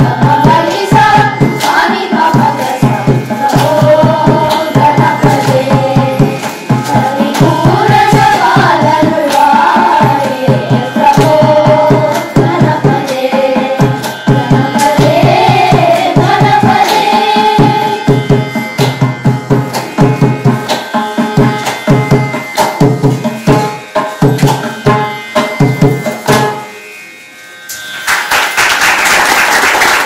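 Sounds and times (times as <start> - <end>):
children singing: 0.0 - 18.2
hand drum fast strokes: 0.0 - 26.6
applause: 28.0 - 30.0.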